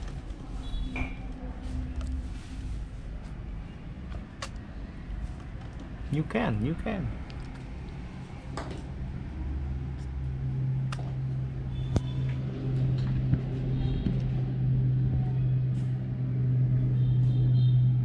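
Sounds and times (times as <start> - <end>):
low motor hum: 7.2 - 18.0.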